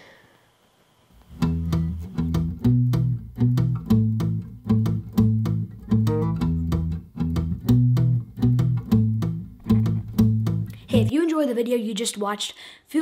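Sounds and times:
music with quick beat and bass: 0:01.4 - 0:11.1.

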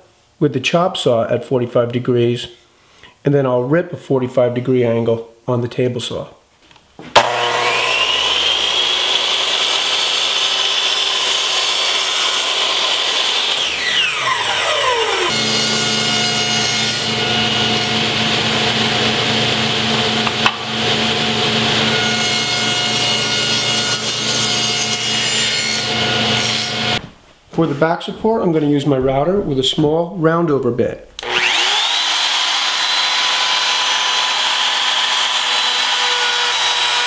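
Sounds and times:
table saw cutting board: 0:07.1 - 0:27.1, 0:31.2 - 0:37.0
miter saw motor whining: 0:07.2 - 0:11.7, 0:12.4 - 0:15.3, 0:31.2 - 0:37.0.

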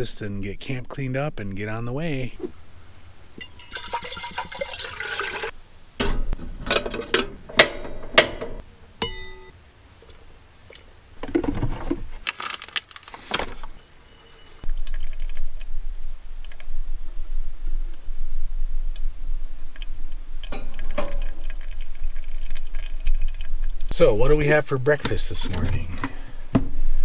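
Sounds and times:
hot water poured over coffee: 0:03.4 - 0:05.5, 0:20.5 - 0:24.0
water pouring into a pot: 0:03.4 - 0:05.5, 0:20.5 - 0:24.0.

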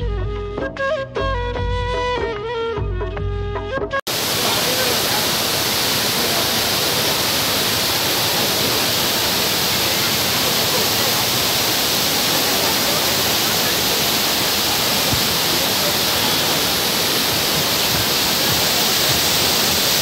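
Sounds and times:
waterfall rushing: 0:04.1 - 0:20.0.

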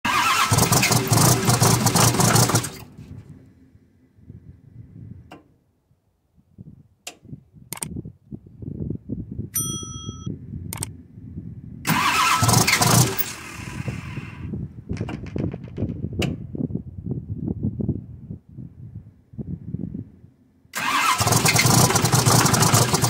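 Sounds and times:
diesel engine starter cranking: 0:00.0 - 0:03.0, 0:11.9 - 0:14.5, 0:20.7 - 0:23.0
sharp clicks: 0:07.0 - 0:08.0, 0:10.7 - 0:11.0
bell-like ding: 0:09.6 - 0:10.3.

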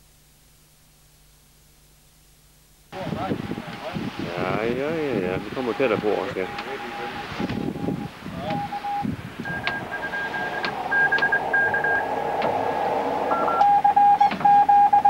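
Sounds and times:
radio band hiss: 0:02.9 - 0:13.6
morse code beeping tones: 0:05.6 - 0:12.4, 0:13.3 - 0:15.0.

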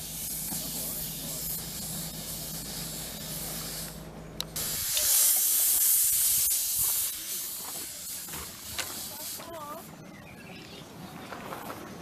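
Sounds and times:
steam locomotive hissing: 0:00.0 - 0:04.0, 0:04.6 - 0:09.9.

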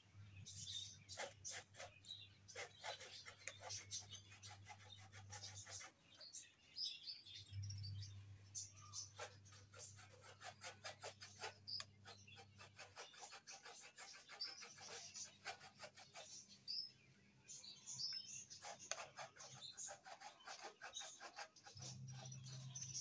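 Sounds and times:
birds chirping: 0:00.0 - 0:23.0
hand tool scraping wood: 0:00.7 - 0:06.4, 0:08.9 - 0:16.4, 0:18.6 - 0:23.0.

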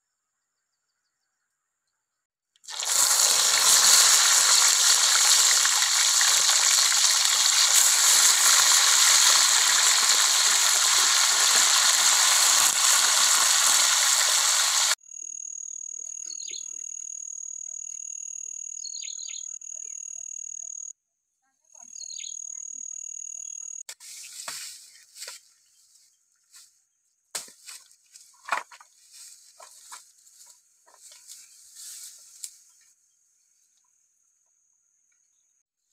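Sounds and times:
fish sizzling in hot oil: 0:02.7 - 0:15.0.

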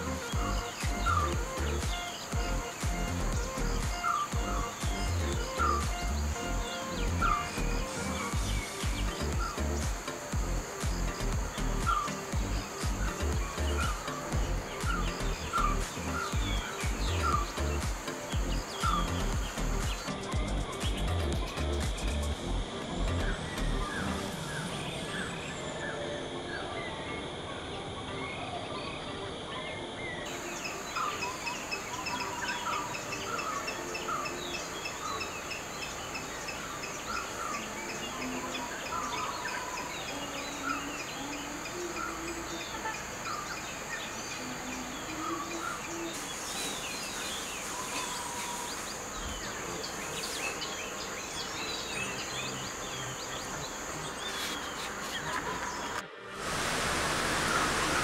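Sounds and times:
birds chirping: 0:00.0 - 0:58.0
insect drone: 0:00.0 - 0:58.0.

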